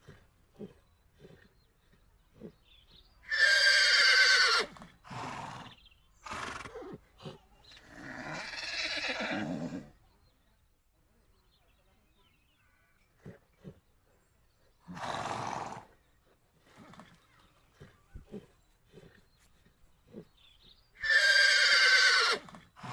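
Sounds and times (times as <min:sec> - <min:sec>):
horse whinnying: 0:03.3 - 0:06.7, 0:07.9 - 0:09.9, 0:21.0 - 0:22.9.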